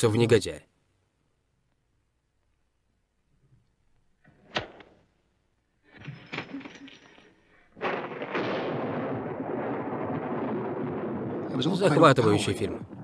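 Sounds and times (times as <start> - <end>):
thunder rumbling: 7.8 - 13.0.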